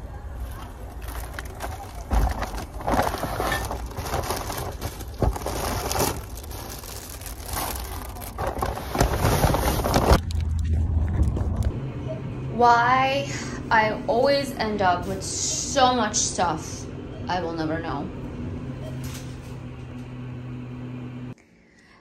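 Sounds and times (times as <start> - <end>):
rustling and crinkling: 0.4 - 11.8.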